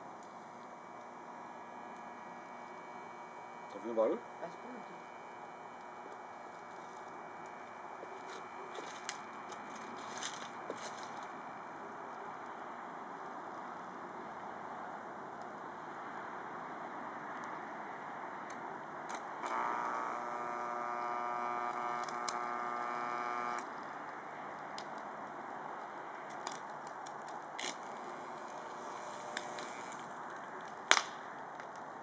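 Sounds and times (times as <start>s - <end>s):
steady electrical hum: 0.0s - 32.0s
crackles and ticks: 18.4s - 28.7s
sharp crack: 30.6s - 31.8s.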